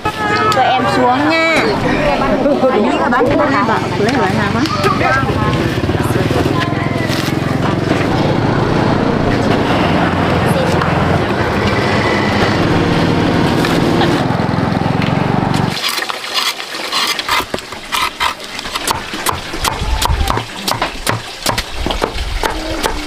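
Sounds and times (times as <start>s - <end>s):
engine-like running noise: 1.7s - 15.8s.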